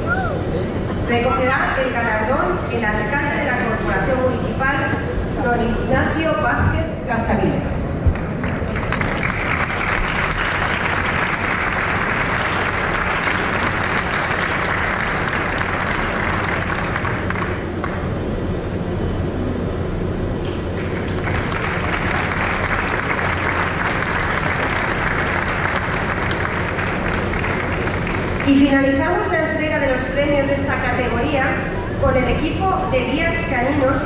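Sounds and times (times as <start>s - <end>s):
audience applauding: 8.2s - 18.0s, 20.8s - 28.6s.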